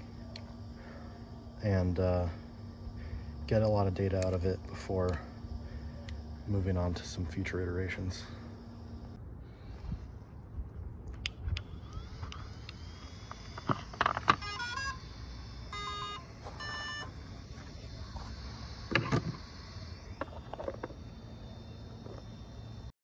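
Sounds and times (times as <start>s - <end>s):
electronic beeps: 11.7s - 22.9s.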